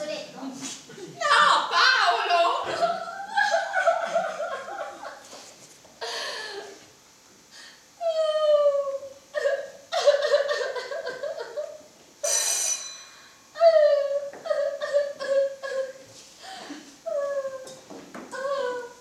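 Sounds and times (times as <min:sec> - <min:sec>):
woman sobbing and wailing: 0:08.0 - 0:11.8, 0:13.6 - 0:16.0, 0:16.6 - 0:17.7, 0:18.3 - 0:19.0.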